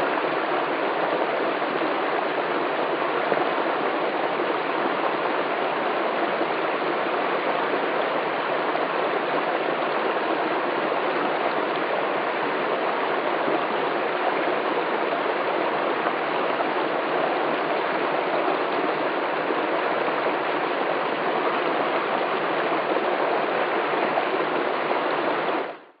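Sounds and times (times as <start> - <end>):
stream running over rocks: 0.0 - 25.8.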